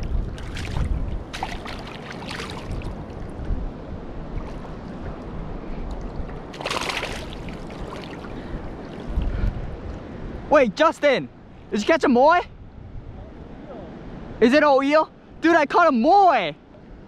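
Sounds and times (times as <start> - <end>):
wind rumble on microphone: 0.0 - 10.7, 11.3 - 14.5
water sloshing: 0.3 - 3.5, 4.2 - 9.4
fish splashing: 0.4 - 3.3, 6.5 - 8.4.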